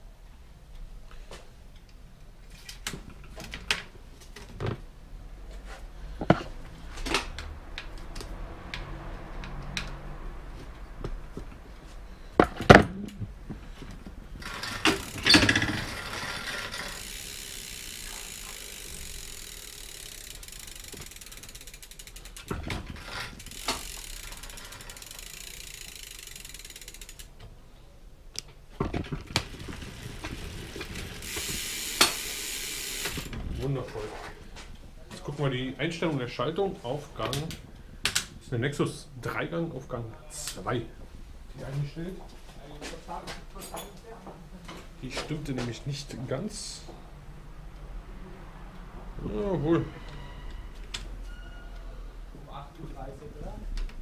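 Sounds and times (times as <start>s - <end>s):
ratcheting: 14.4s - 27.4s, 29.2s - 33.5s.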